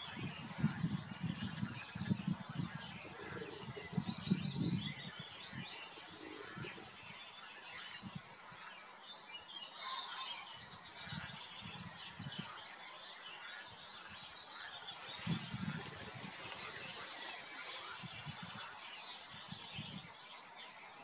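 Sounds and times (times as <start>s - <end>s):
small songbirds chirping: 0.0s - 21.0s.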